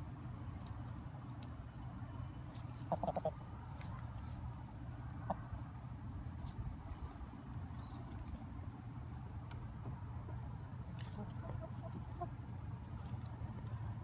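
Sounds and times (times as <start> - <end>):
hens clucking: 2.5 - 4.4, 5.0 - 5.7, 9.4 - 13.3.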